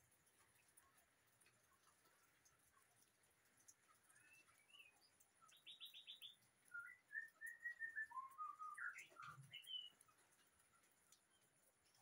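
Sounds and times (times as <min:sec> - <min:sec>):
bird singing: 0:04.0 - 0:10.3.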